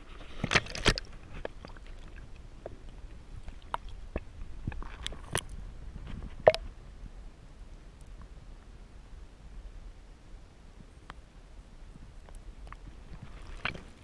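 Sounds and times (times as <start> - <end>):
faint underwater clicks and ticks: 0.0 - 6.8, 7.9 - 8.8, 10.8 - 14.0.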